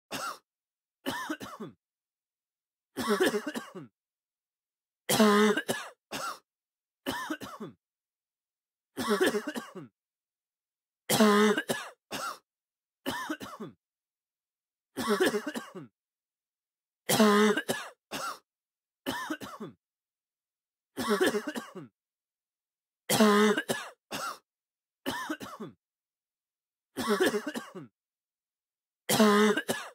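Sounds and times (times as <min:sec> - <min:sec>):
person coughing: 0:00.1 - 0:00.4, 0:01.0 - 0:01.8, 0:03.0 - 0:03.9, 0:05.1 - 0:06.4, 0:07.1 - 0:07.8, 0:09.0 - 0:09.9, 0:11.1 - 0:12.4, 0:13.0 - 0:13.8, 0:15.0 - 0:15.9, 0:17.1 - 0:18.4, 0:19.1 - 0:19.8, 0:21.0 - 0:21.9, 0:23.1 - 0:24.4, 0:25.0 - 0:25.8, 0:27.0 - 0:27.9, 0:29.1 - 0:29.9.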